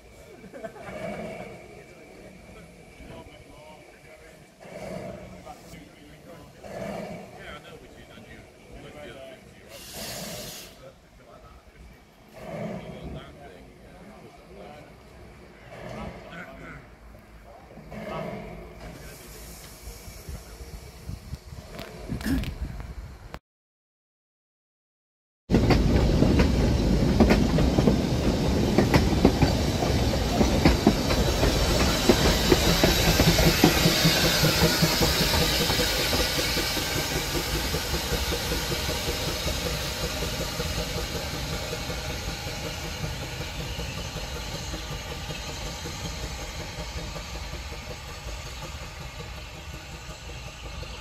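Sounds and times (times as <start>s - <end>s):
steam locomotive exhaust beats: 0.0s - 23.3s, 25.5s - 51.0s
train wheels clattering over rail joints: 25.5s - 51.0s.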